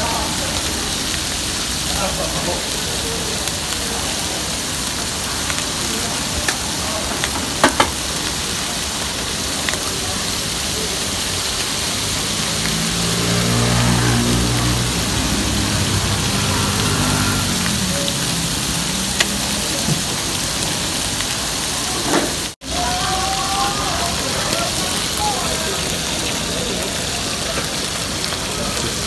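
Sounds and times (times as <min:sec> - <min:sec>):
squid sizzling on a griddle: 0:00.0 - 0:29.0.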